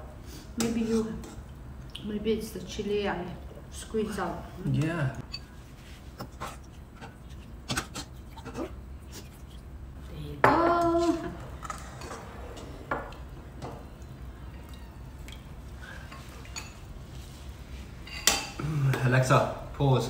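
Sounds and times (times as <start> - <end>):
low steady hum: 0.0 - 20.0
spoons clinking against bowls: 5.2 - 5.5, 18.0 - 18.6.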